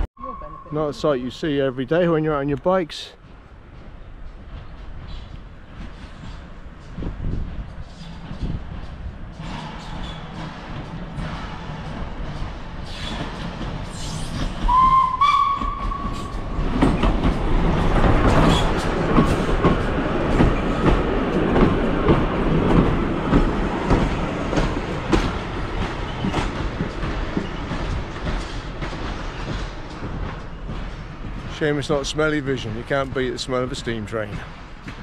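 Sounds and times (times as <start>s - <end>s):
train wheels clattering on rails: 1.9s - 35.0s
steam train whistle: 14.7s - 16.3s.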